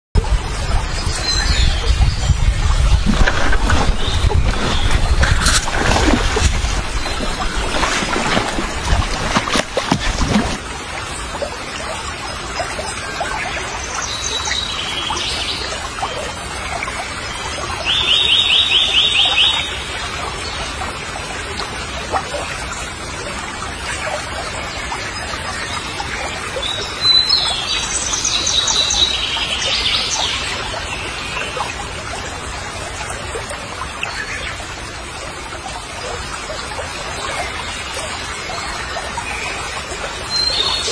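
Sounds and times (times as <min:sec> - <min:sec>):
water splashing: 0:01.8 - 0:14.0
water washing: 0:02.5 - 0:11.4.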